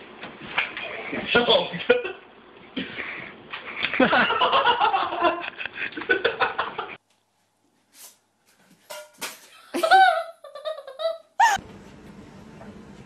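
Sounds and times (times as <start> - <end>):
people laughing: 3.8 - 7.0.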